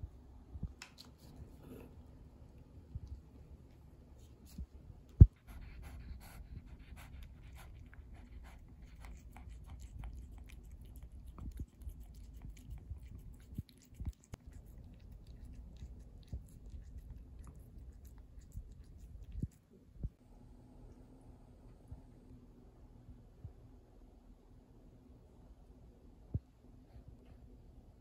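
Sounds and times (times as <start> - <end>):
cat lapping wet food: 5.3 - 19.6.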